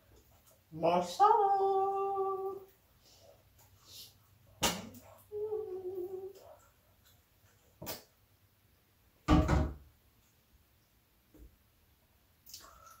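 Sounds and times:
woman humming: 0:05.3 - 0:06.4.

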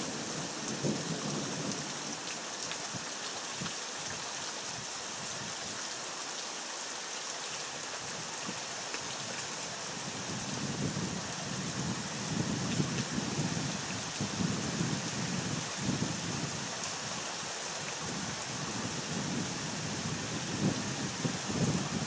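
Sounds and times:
low rumble of thunder: 0:00.0 - 0:02.1
heavy rain: 0:00.0 - 0:22.0.

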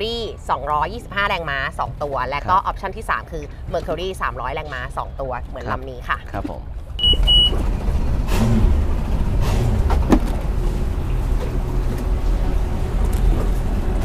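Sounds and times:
outboard engines idling: 0:05.6 - 0:14.0.

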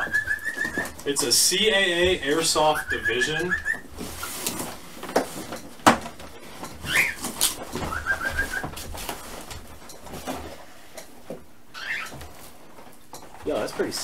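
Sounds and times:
bird chirping: 0:00.0 - 0:01.0, 0:02.6 - 0:03.9, 0:06.8 - 0:07.2, 0:11.7 - 0:12.2.

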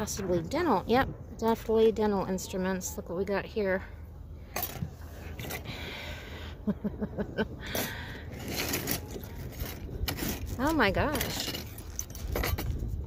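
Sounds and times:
steel instruments clinking in a box: 0:07.7 - 0:13.0.

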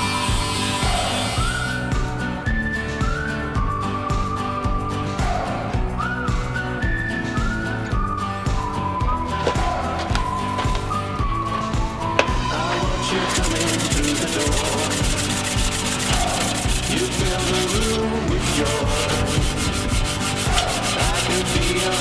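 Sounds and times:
sandpaper on metal sheet: 0:00.0 - 0:01.6, 0:13.1 - 0:22.0.

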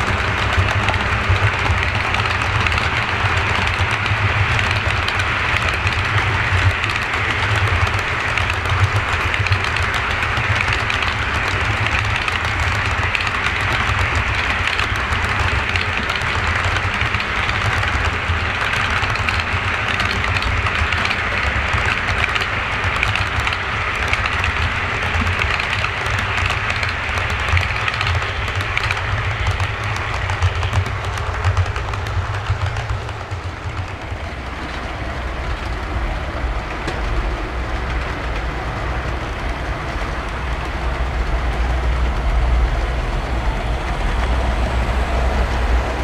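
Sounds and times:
model train wheels clattering: 0:00.0 - 0:46.0.

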